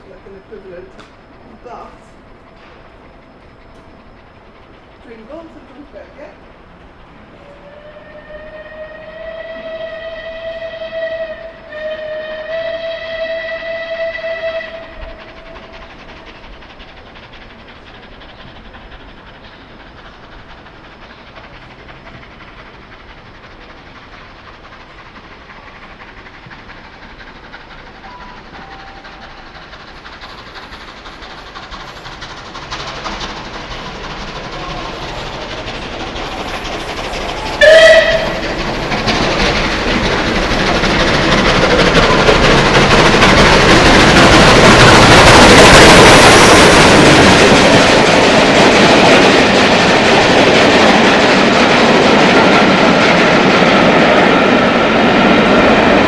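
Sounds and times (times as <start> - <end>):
steam locomotive running past: 0.0 - 56.0
steam whistle blast: 7.4 - 15.3, 37.6 - 38.6.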